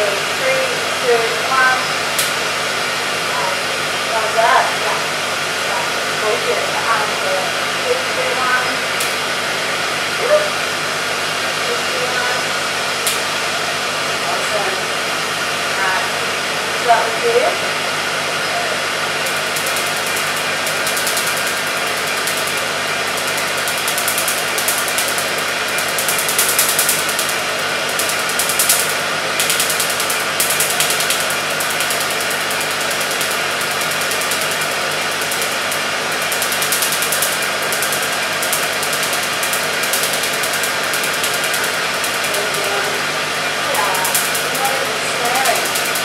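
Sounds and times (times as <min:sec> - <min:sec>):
machine hum: 0:00.0 - 0:46.0
crackle of laser pulses: 0:01.0 - 0:02.5, 0:19.2 - 0:46.0.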